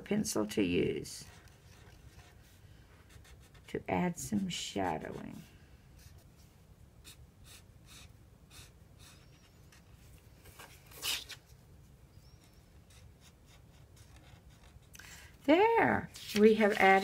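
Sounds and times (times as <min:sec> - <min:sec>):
marker scratching on paper: 0:01.2 - 0:06.2, 0:07.0 - 0:09.8, 0:12.4 - 0:14.9.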